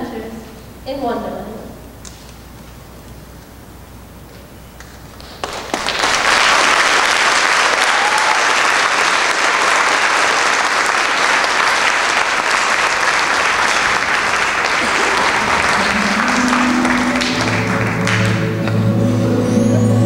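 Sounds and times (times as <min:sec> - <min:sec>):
audience applauding: 0:05.1 - 0:18.9.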